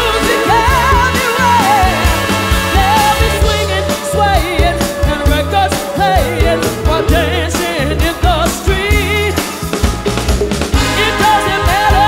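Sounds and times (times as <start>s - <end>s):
person singing: 0.0s - 9.6s
live soul band playing: 0.0s - 12.0s.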